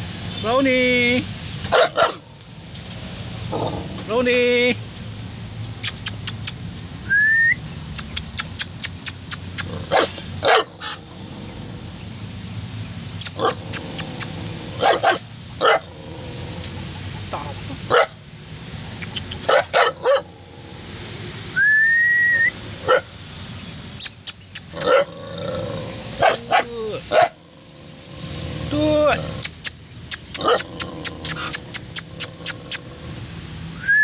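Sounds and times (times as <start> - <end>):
dog barking: 1.7 - 2.2, 9.9 - 11.0, 14.8 - 15.9, 17.9 - 18.2, 19.5 - 20.3, 22.8 - 23.1, 24.8 - 25.1, 26.2 - 27.4
rising whistle: 7.1 - 7.6, 21.6 - 22.6, 33.8 - 34.0.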